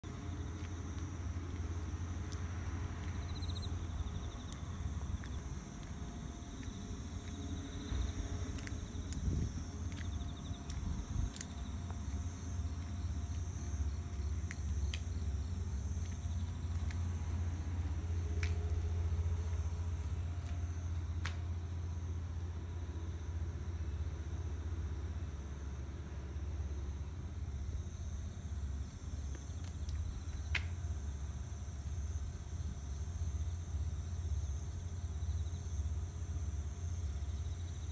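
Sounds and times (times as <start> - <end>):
low rumble: 0.0 - 27.6
insects chirping and trilling: 0.1 - 37.9.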